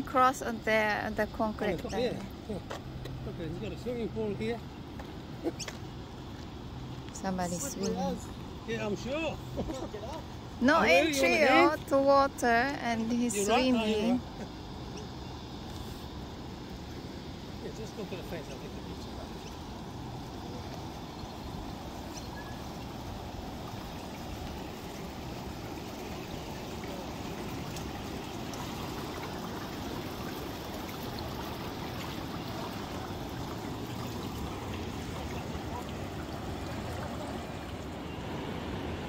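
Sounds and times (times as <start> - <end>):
river water rushing over weir: 15.6 - 39.0.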